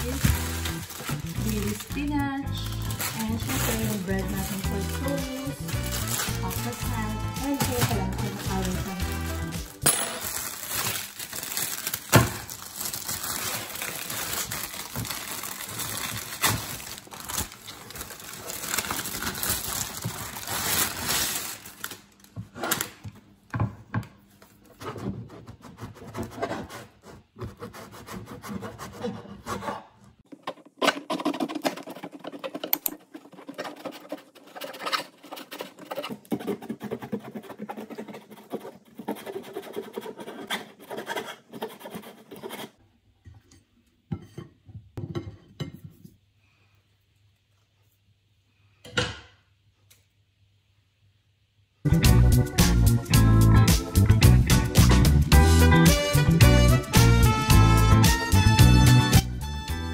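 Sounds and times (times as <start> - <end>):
paper bag crinkling: 0.0 - 22.8
knife sawing through bread: 24.8 - 30.0, 30.9 - 42.8.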